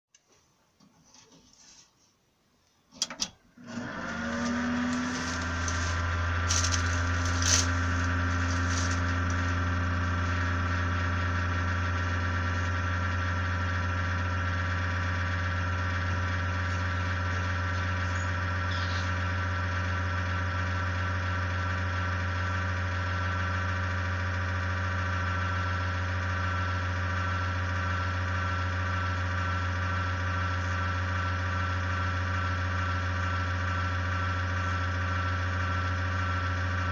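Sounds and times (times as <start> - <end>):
computer fans humming: 3.6 - 19.6
high whine: 3.6 - 19.7.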